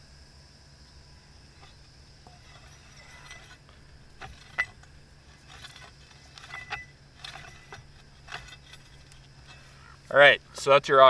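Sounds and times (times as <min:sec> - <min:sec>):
threaded joint scraping and clicking: 0:01.6 - 0:10.1.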